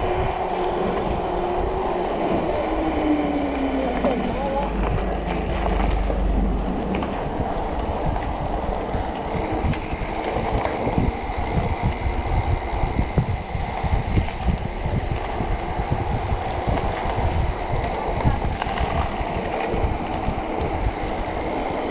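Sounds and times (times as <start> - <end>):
bike rattling over bumps: 0.0 - 21.9
tyre noise: 0.0 - 21.9
wind noise on microphone: 0.0 - 21.9.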